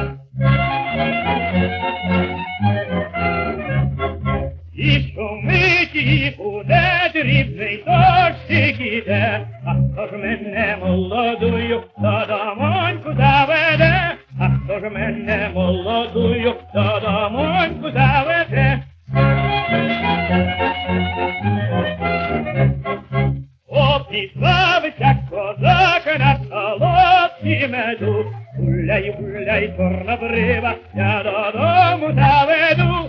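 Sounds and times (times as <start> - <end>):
orchestral accompaniment: 0.0 - 6.2, 10.7 - 23.5
man singing with vibrato: 4.7 - 20.2, 23.7 - 33.0.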